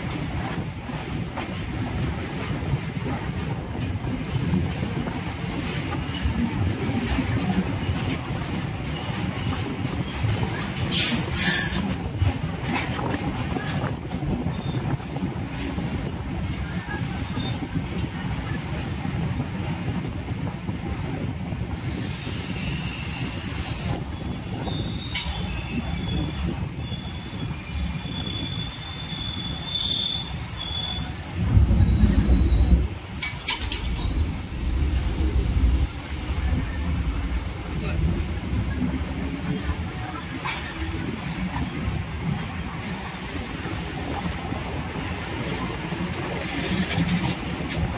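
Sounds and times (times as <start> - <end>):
train rumbling on rails: 0.0 - 47.9
steel wheels squealing: 8.9 - 12.0, 13.6 - 15.0, 16.4 - 17.8, 21.9 - 34.8.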